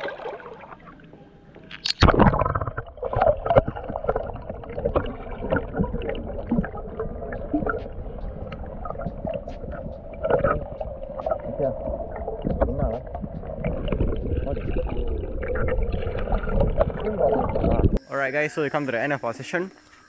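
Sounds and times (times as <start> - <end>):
camera splashing into water: 1.8 - 4.2
underwater gurgling and bubbling: 1.9 - 18.0.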